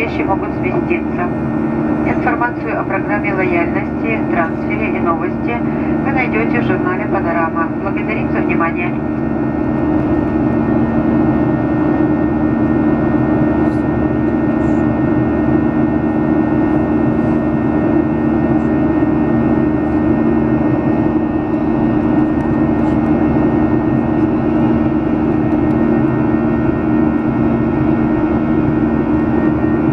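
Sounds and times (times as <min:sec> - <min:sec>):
jet engine roar in cabin: 0:00.0 - 0:29.9
low two-note hum: 0:09.1 - 0:29.9.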